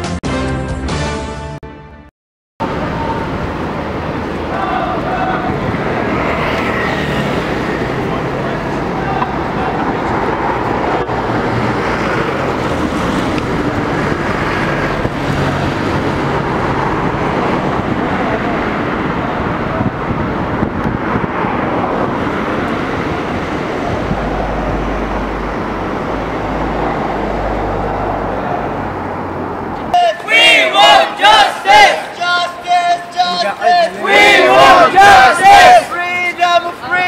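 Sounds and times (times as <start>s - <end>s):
crowd voices: 2.6s - 11.2s, 29.8s - 37.0s
street traffic: 2.6s - 37.0s.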